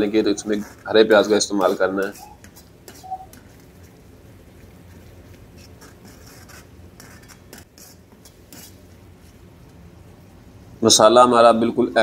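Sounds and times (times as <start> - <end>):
steel ladle scraping pan: 0.0 - 3.5
steady low hum: 0.0 - 12.0.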